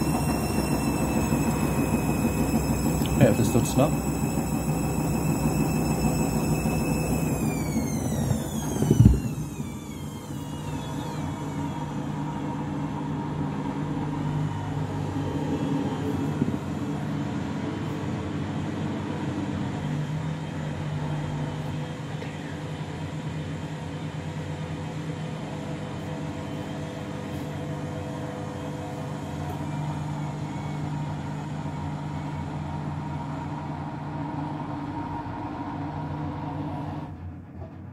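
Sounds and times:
faint wavering whine: 0:00.0 - 0:18.8
washing machine motor hum: 0:00.0 - 0:37.9.

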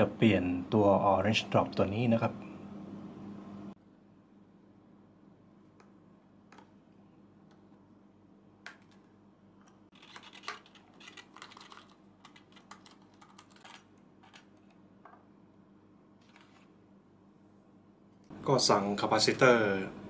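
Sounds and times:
low steady hum: 0:00.0 - 0:20.0
small metal clicks and rattles: 0:10.0 - 0:14.7.

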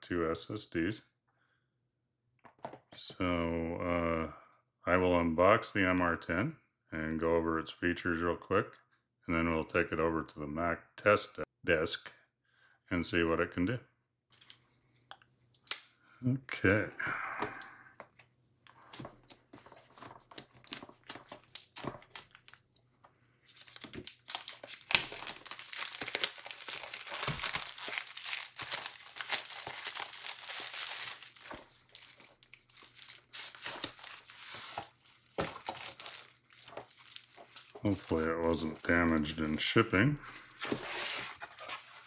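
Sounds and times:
packaging crinkling and tearing: 0:18.8 - 0:39.8.

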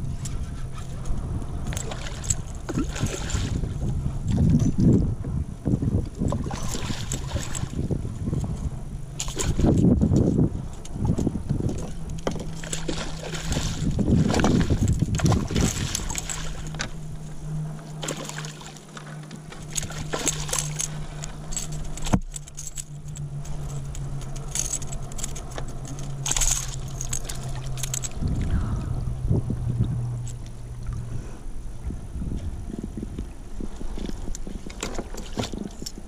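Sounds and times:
low rumbles: 0:00.0 - 0:36.0
steady low hum: 0:00.0 - 0:36.0
fish splashing in water: 0:12.4 - 0:17.0, 0:18.0 - 0:21.3.

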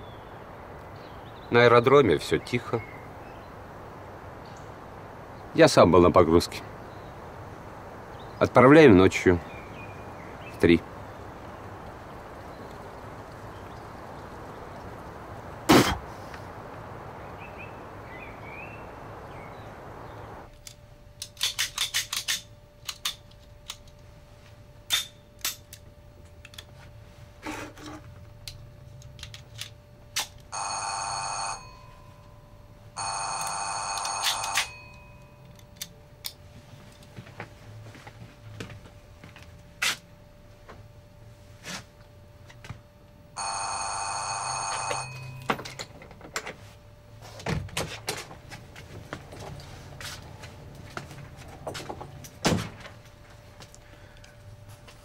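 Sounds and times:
telephone bell ringing: 0:30.5 - 0:35.5, 0:43.4 - 0:45.6.

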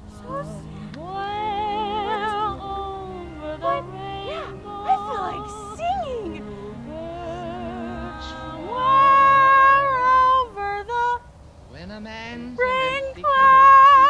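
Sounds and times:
woman singing wordless high notes: 0:00.0 - 0:11.3, 0:12.6 - 0:14.0.

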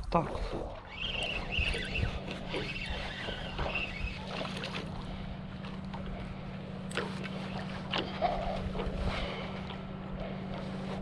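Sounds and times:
boat motor humming: 0:00.0 - 0:11.0
water noise: 0:00.0 - 0:11.0
wind: 0:00.0 - 0:11.0.

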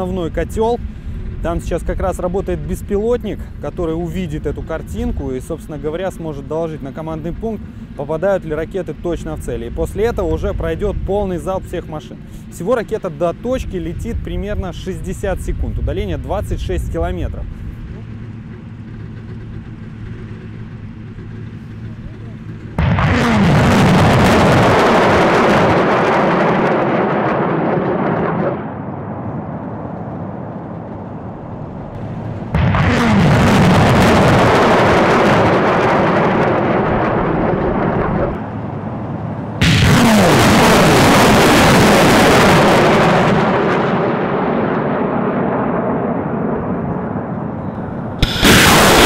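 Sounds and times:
rockets launching: 0:22.8 - 0:29.1, 0:32.0 - 0:38.4, 0:39.6 - 0:47.3, 0:48.1 - 0:49.0
rocket motors hissing: 0:48.2 - 0:49.0.

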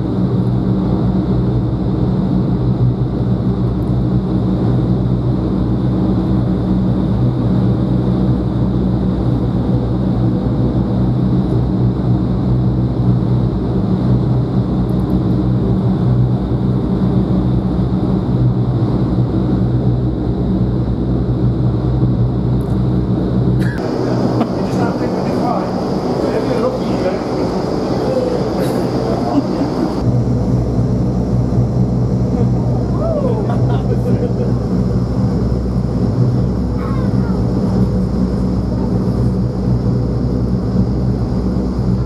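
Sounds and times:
low fan hum: 0:00.0 - 0:42.0
loud rush of air: 0:23.4 - 0:42.0.

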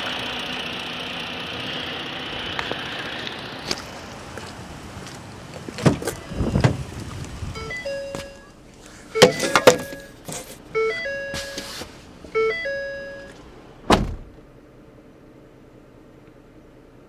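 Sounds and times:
car door shutting: 0:05.8 - 0:06.9, 0:09.2 - 0:14.5.

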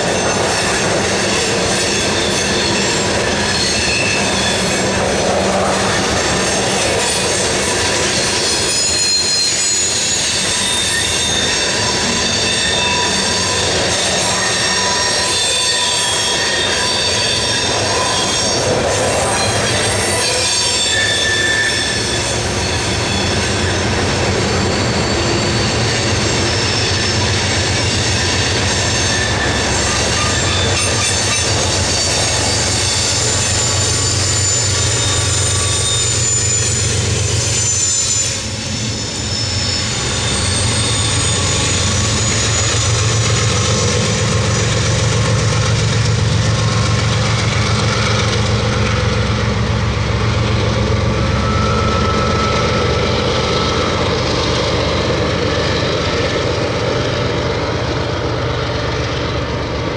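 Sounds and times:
diesel locomotives droning: 0:00.0 - 0:59.9
steel wheels squealing: 0:00.0 - 0:59.9
wheels clacking over rail joints: 0:25.9 - 0:35.0.

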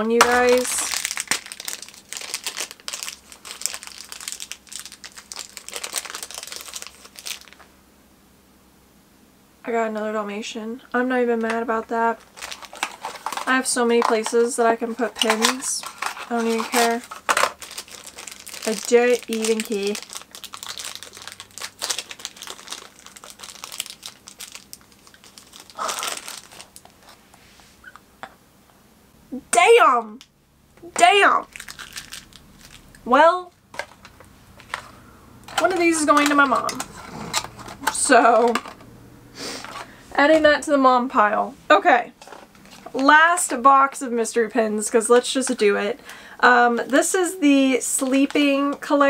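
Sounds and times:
packaging crinkling: 0:00.0 - 0:07.7, 0:12.1 - 0:27.2, 0:31.4 - 0:33.0, 0:33.6 - 0:38.8
person gasping: 0:46.0 - 0:46.4.

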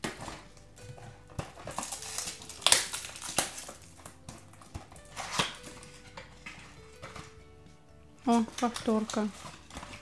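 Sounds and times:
cardboard box crinkling and scraping: 0:00.0 - 0:07.4.

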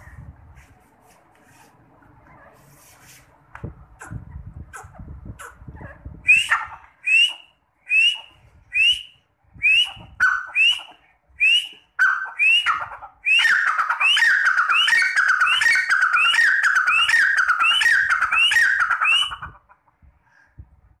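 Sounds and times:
partridge calling: 0:09.8 - 0:11.1, 0:11.8 - 0:19.8.

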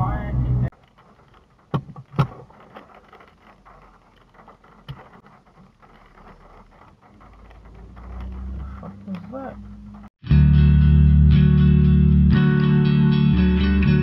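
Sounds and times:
low engine hum: 0:00.0 - 0:00.7, 0:06.7 - 0:10.4
road and engine noise: 0:00.0 - 0:10.2.

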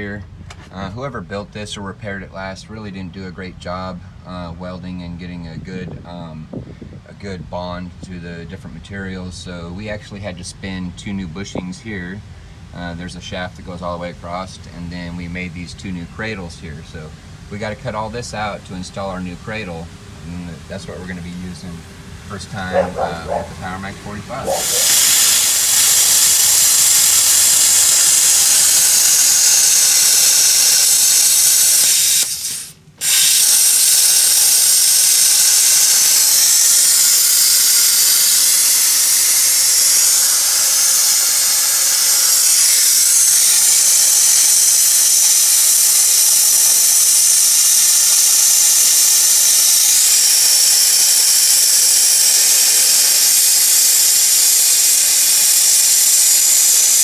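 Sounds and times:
plasma torch cutting steel: 0:22.6 - 0:57.0.

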